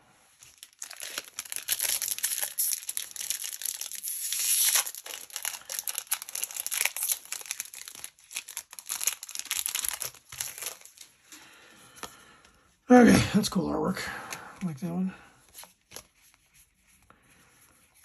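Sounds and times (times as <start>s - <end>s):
foil wrapper tearing: 0.4s - 11.1s
foil wrapper crinkling: 0.4s - 11.2s.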